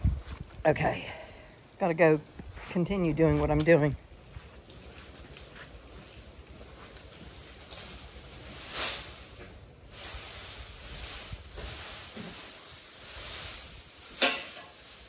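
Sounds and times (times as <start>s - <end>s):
straw rustling: 4.2s - 15.0s.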